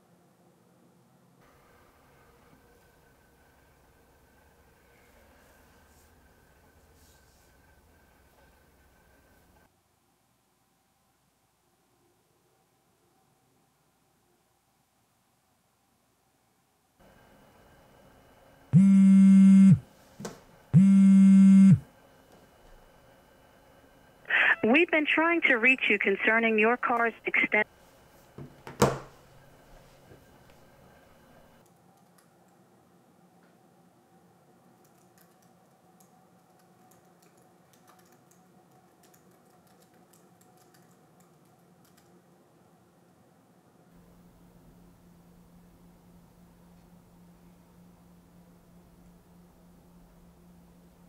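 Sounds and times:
faint steady hum: 0:00.0 - 0:51.0
buzzy telephone ringing tone: 0:18.8 - 0:19.9, 0:20.8 - 0:21.9
typing on laptop keyboard: 0:34.8 - 0:42.2.

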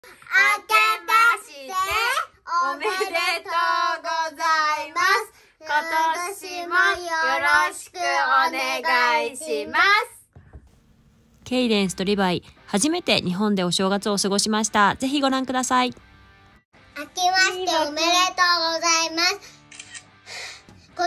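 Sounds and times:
child singing: 0:00.3 - 0:10.1.

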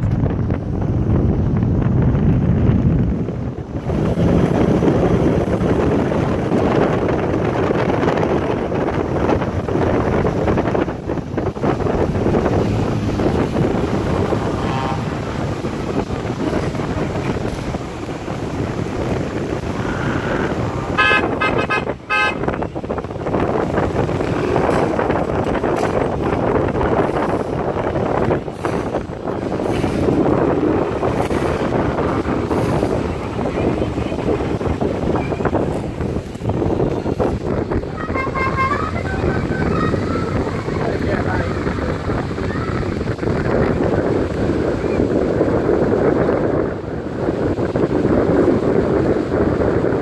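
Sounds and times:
cars running: 0:00.0 - 0:50.0
wind buffeting microphone: 0:00.0 - 0:50.0
car horn short toots: 0:20.9 - 0:22.6, 0:38.0 - 0:40.2.

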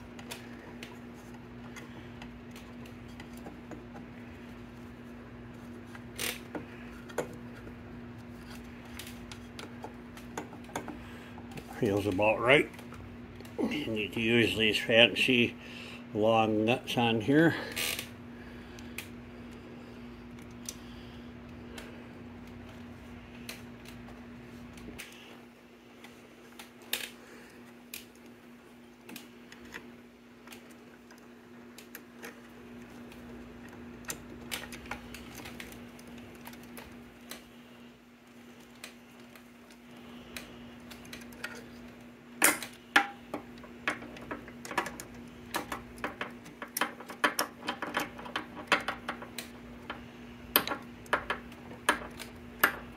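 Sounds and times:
steady low hum: 0:00.0 - 0:52.9
metal clicks and taps: 0:42.5 - 0:52.9.

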